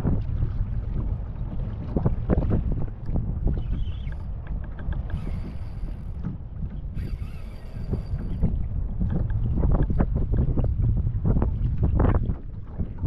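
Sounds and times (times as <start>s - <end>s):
wind rumbling on microphone: 0.0s - 13.0s
fishing reel clicks and knocks: 4.0s - 6.3s, 6.9s - 9.9s.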